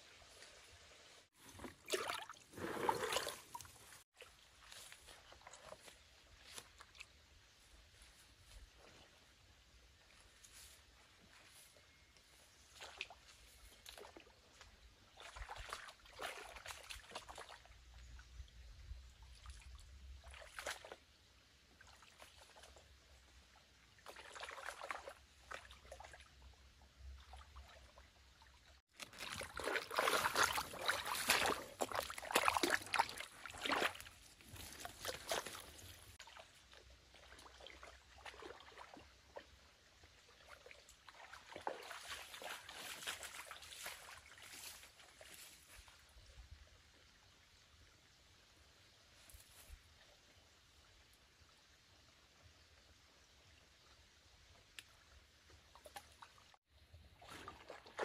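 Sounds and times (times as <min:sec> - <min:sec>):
water sloshing and trickling: 0:00.1 - 0:07.7, 0:12.4 - 0:47.1, 0:54.2 - 0:58.0.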